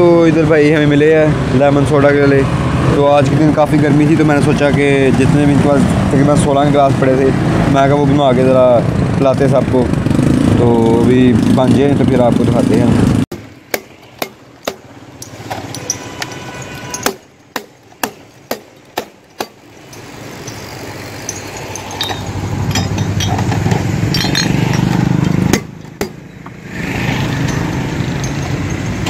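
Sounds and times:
road traffic rumble: 0.0s - 29.0s
glass bottles clinking: 13.8s - 26.5s, 27.4s - 29.0s.

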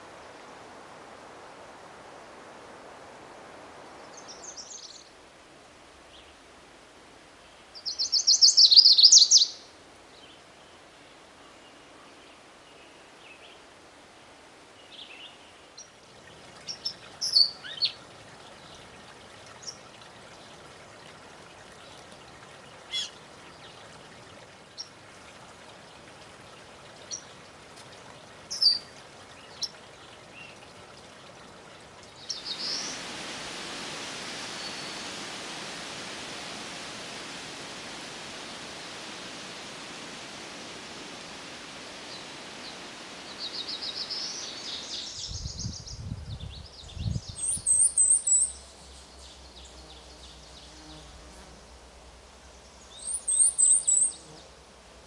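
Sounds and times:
warbler singing: 7.8s - 9.7s, 16.7s - 18.0s, 22.9s - 23.8s, 28.5s - 30.6s, 32.2s - 33.0s, 42.1s - 50.7s, 52.7s - 54.3s.

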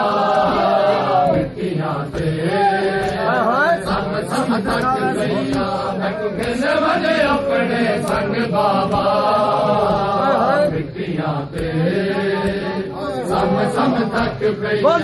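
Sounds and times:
men chanting: 0.0s - 15.0s
hands beating on chests: 11.5s - 13.5s.

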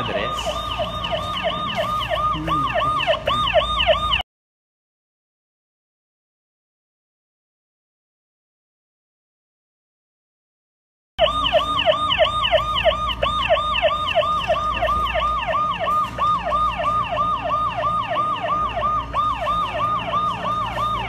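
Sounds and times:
electronic siren alarm: 0.0s - 4.2s, 11.2s - 21.0s.

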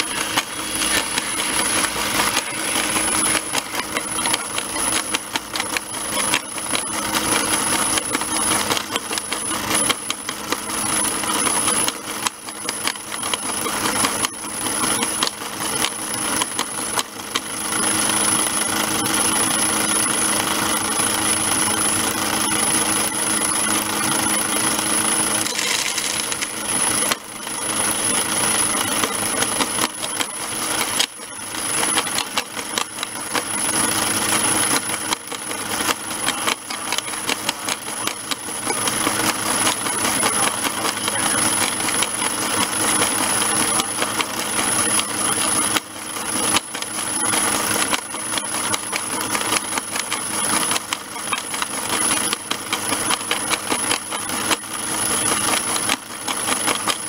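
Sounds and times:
stones rattling through crusher: 0.0s - 10.6s, 25.3s - 57.0s
high-pitched whine: 0.0s - 52.5s.

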